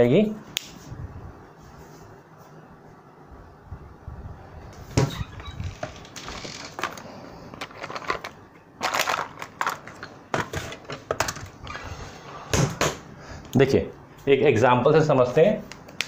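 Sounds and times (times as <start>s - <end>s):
handling clicks and scrapes: 5.5s - 11.8s.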